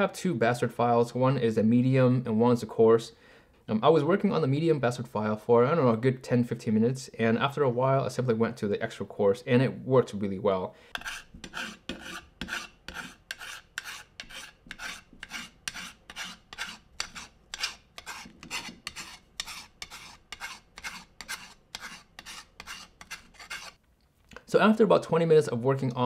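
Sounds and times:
file rasping on steel: 10.9 - 23.8.

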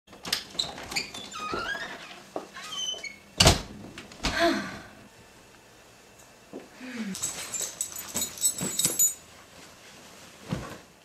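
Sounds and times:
door banging shut: 3.4 - 3.7.

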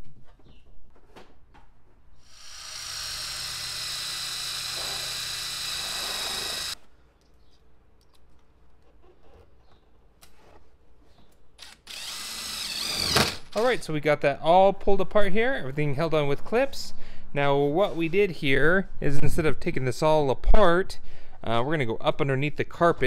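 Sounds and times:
cordless drill running: 2.2 - 6.8, 11.6 - 13.5.

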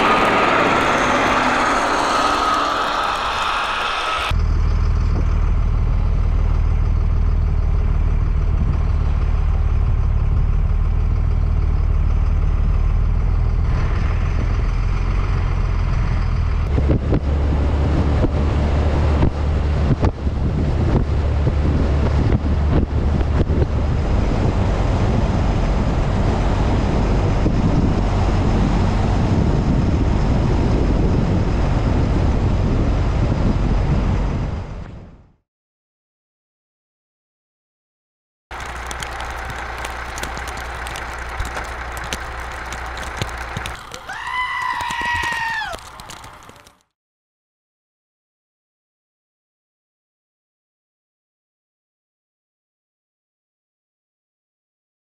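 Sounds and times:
broad rushing noise: 0.0 - 4.4
engine running low drone: 0.0 - 35.4, 38.5 - 46.9.

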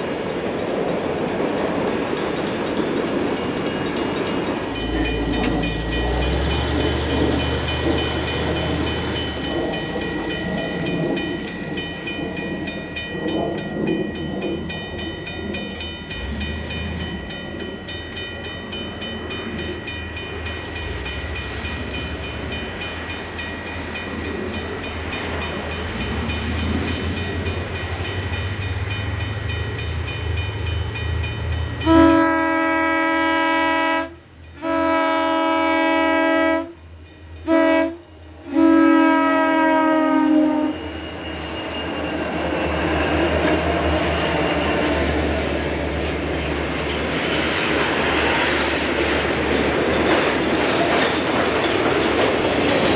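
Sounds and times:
diesel locomotive engines droning: 0.0 - 52.9
train air horn blast: 31.8 - 36.8, 37.4 - 40.9.

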